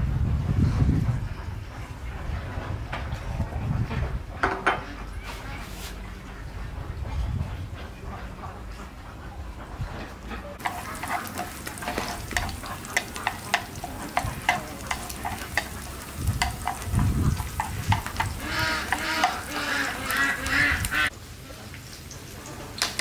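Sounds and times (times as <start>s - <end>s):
chopsticks stirring in pan: 10.6s - 21.1s
garlic sizzling in hot oil: 10.6s - 23.0s.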